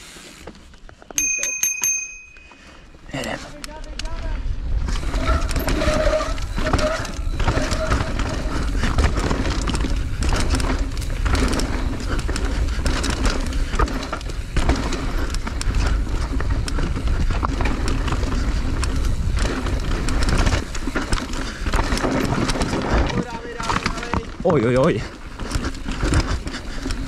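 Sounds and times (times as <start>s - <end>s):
bike rattling and clattering: 0.0s - 27.0s
wind rushing over microphone: 4.2s - 23.6s.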